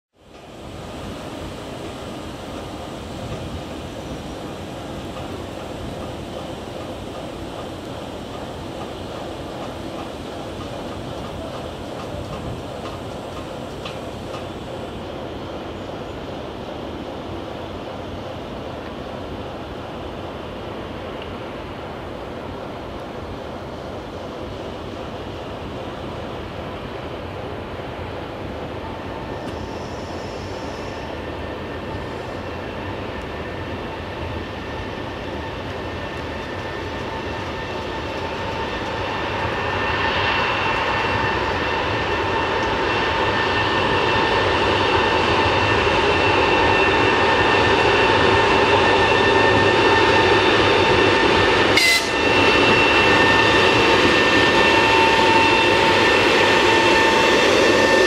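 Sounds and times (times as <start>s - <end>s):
train wheels rumbling: 0.3s - 58.0s
locomotive whining tones: 46.3s - 58.0s.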